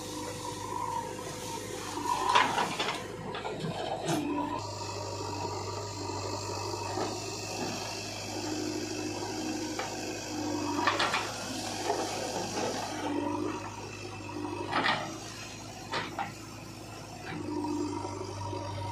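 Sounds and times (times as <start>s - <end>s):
diesel engine running under load: 0.0s - 18.9s
hydraulics hissing: 4.6s - 17.9s.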